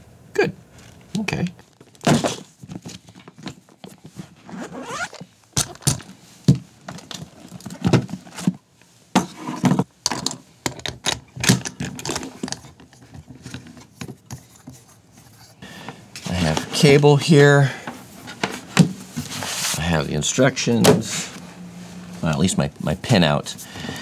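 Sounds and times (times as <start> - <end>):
rummaging through tool bag: 1.7 - 8.6
bag zipper opening: 4.4 - 5.3.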